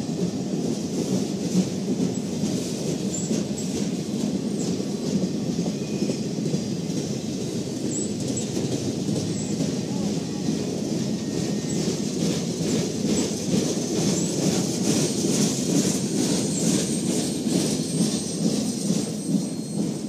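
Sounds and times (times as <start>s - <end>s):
train rumbling on rails: 0.0s - 20.0s
train wheel clicks: 10.8s - 20.0s.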